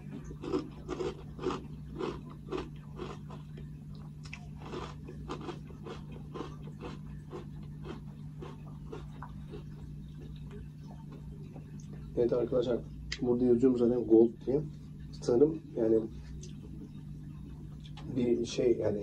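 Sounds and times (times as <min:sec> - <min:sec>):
chewing crunchy cereal flakes: 0:00.0 - 0:12.1
steady low hum: 0:00.0 - 0:19.0.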